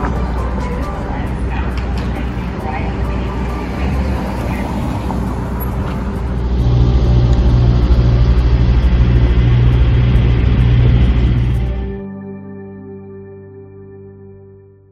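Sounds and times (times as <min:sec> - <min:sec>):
cars driving past: 0:00.0 - 0:11.9
heavy low rumble: 0:00.0 - 0:12.1.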